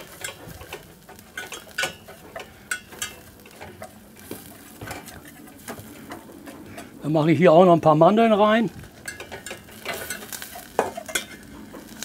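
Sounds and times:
faint sizzle in pan: 0.0 - 12.0
metal utensil scraping saucepan: 9.1 - 11.5.

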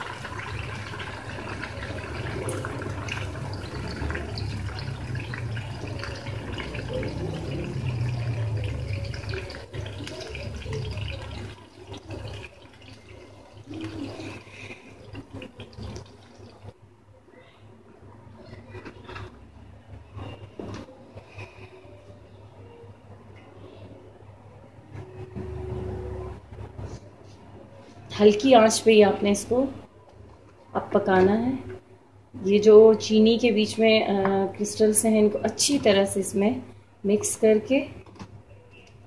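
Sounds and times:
syrup sizzling and bubbling: 0.0 - 16.8.

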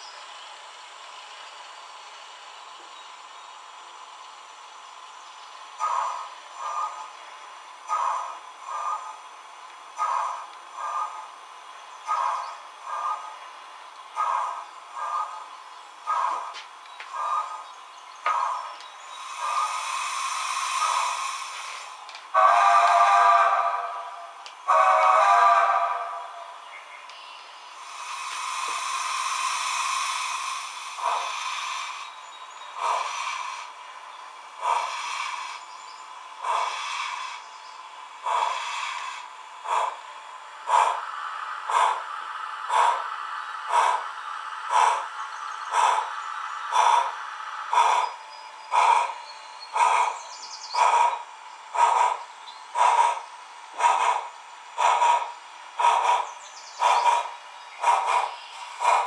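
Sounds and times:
steam locomotive exhaust chuffs: 0.0 - 26.7, 27.4 - 59.0
steam hissing: 18.3 - 26.6, 27.7 - 33.9, 34.6 - 35.7, 36.4 - 59.0.

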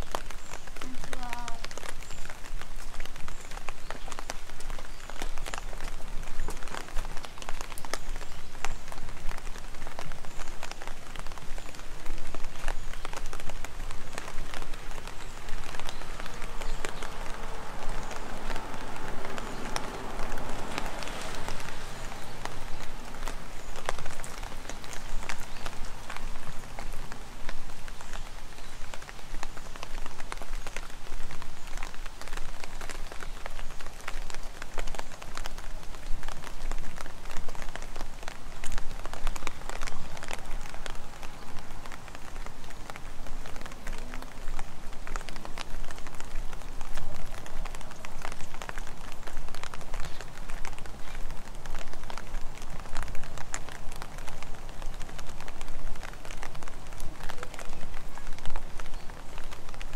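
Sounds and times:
heavy rain on pavement: 0.0 - 59.9
raindrops tapping: 0.0 - 59.9.

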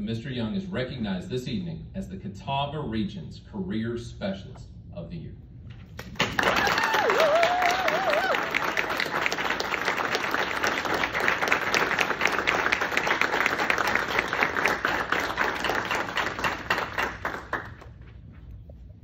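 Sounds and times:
audience applauding: 6.0 - 18.0.

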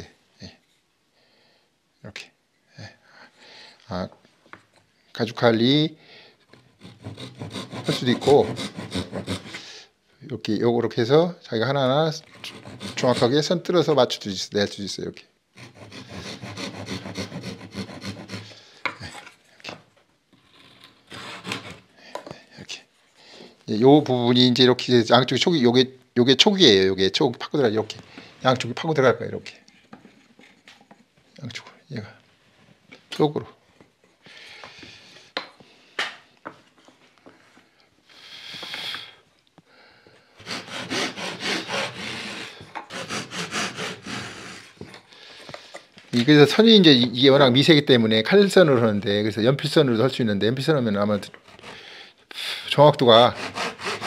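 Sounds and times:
wood scraping: 6.5 - 9.7, 12.2 - 13.4, 15.6 - 21.9, 40.4 - 46.4, 51.2 - 51.9, 53.0 - 54.0
hand saw rasping on wood: 6.6 - 9.6, 12.2 - 13.4, 15.6 - 18.6, 20.4 - 21.8, 40.4 - 44.8, 51.4 - 51.9, 53.1 - 54.0.

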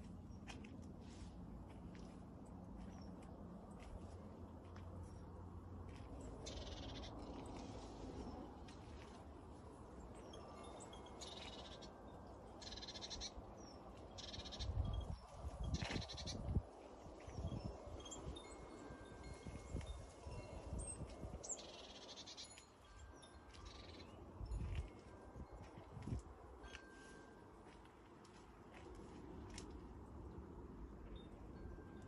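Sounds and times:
bird chirps: 12.6 - 14.8.

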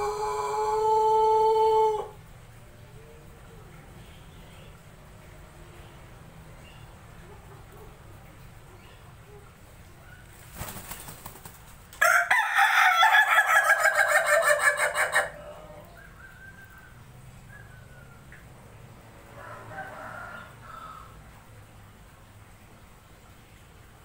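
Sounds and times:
wing flapping: 10.3 - 12.0
rooster laughing crow: 12.0 - 15.9
faint soft chicken calls: 19.3 - 21.5.

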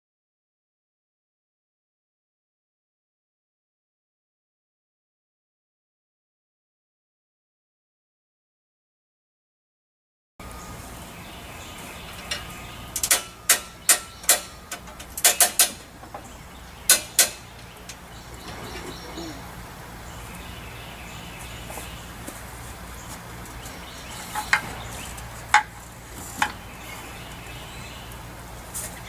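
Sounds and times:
metal clicks and clanks: 12.1 - 16.3, 16.9 - 18.6.

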